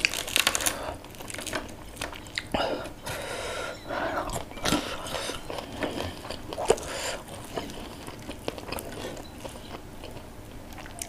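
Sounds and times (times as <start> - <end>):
fish picked apart crackles: 0.0 - 3.2
person chewing: 0.0 - 11.0.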